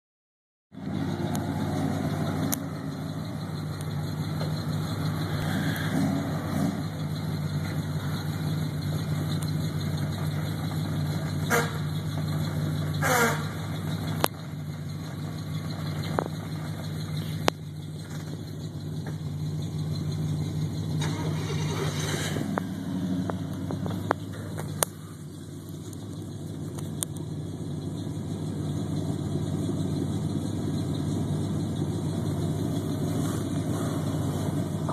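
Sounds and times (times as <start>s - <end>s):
truck engine at low revs: 0.7s - 34.9s
short falling squeals: 1.9s - 10.3s, 11.1s - 14.1s, 19.7s - 23.2s.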